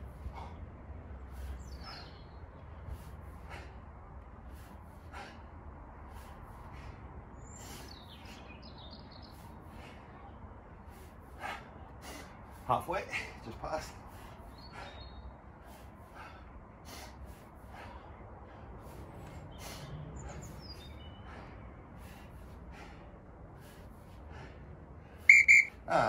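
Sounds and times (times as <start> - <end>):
man breathing hard: 0.0 - 26.0
bird chirps: 20.2 - 21.3, 25.3 - 25.7
timer beeps: 25.3 - 25.7.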